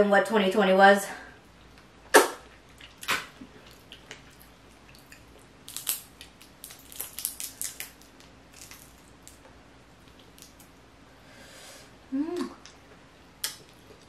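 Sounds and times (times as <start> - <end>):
crawfish shell cracking: 4.9 - 10.7.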